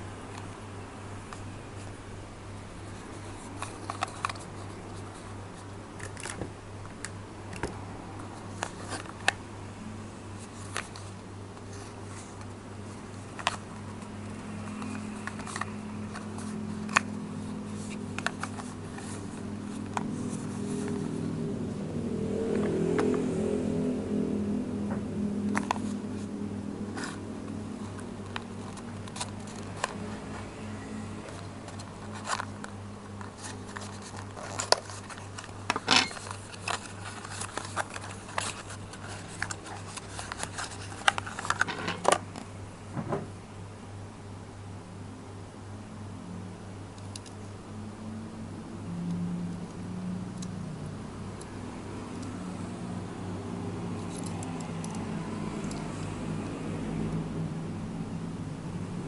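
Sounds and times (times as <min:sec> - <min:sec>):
steady low hum: 0:00.0 - 0:59.0
low drone: 0:14.2 - 0:34.0.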